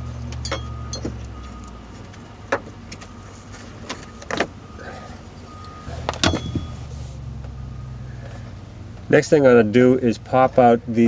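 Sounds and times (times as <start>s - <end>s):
low steady hum: 0.0s - 11.0s
sharp metallic clink: 0.3s - 1.1s, 6.2s - 6.8s.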